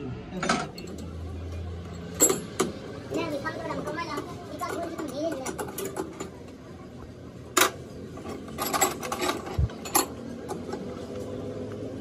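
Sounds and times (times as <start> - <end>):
spanner clinking on metal: 1.9 - 2.7, 7.6 - 10.6.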